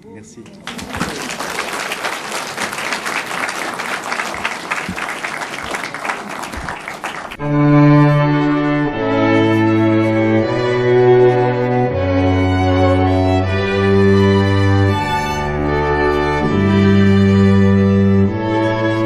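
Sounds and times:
audience applauding: 0:00.0 - 0:07.4
music with long low notes: 0:07.4 - 0:19.0.

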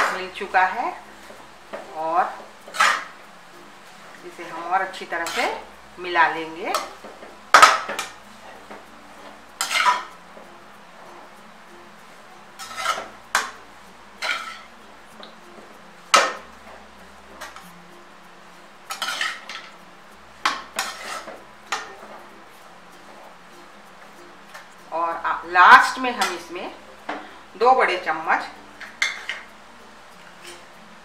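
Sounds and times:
metal spatula scraping metal pan: 0:02.2 - 0:03.2, 0:04.4 - 0:05.7, 0:09.6 - 0:10.1, 0:12.6 - 0:13.6, 0:14.2 - 0:14.7, 0:18.9 - 0:19.8, 0:20.5 - 0:21.9.

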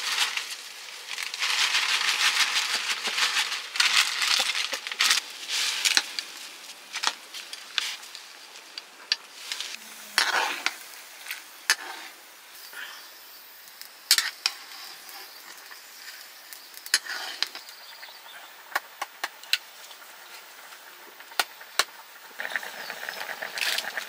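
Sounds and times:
crinkling and rustling: 0:00.0 - 0:09.9.

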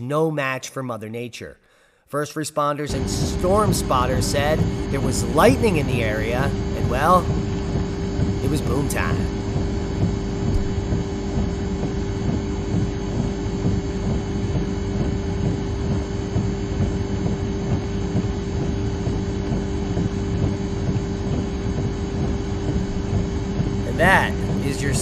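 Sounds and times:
constant hum: 0:02.8 - 0:25.0
steady outdoor rumble: 0:02.9 - 0:25.0.

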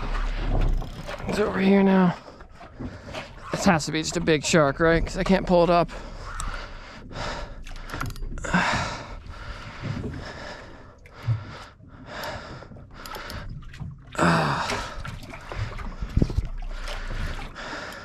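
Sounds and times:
man breathing heavily: 0:05.9 - 0:13.6, 0:14.2 - 0:18.0.

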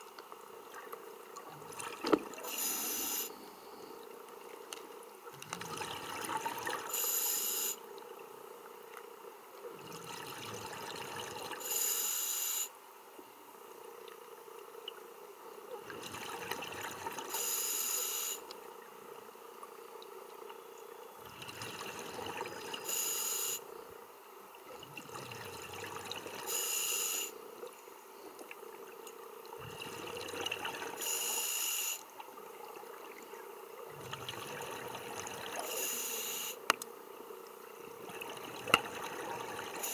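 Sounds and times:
regulator inhale hiss: 0:02.4 - 0:04.0, 0:06.9 - 0:07.8, 0:11.6 - 0:12.7, 0:17.3 - 0:18.5, 0:22.8 - 0:23.7, 0:26.5 - 0:27.4, 0:31.0 - 0:32.1, 0:35.6 - 0:36.6.

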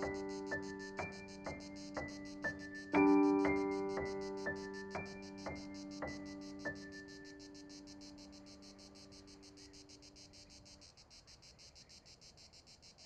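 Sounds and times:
piano note ringing: 0:00.0 - 0:08.0
crickets chirping: 0:00.0 - 0:13.0.

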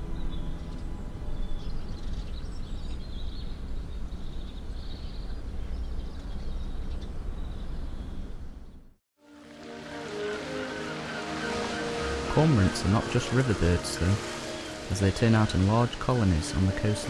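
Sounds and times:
small birds chirping: 0:00.2 - 0:08.8.

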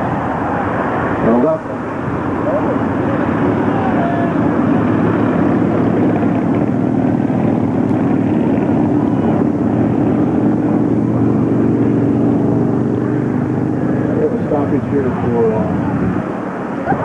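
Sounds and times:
faint voices: 0:00.0 - 0:05.4, 0:14.0 - 0:17.0
loud mechanical drone: 0:00.0 - 0:17.0.

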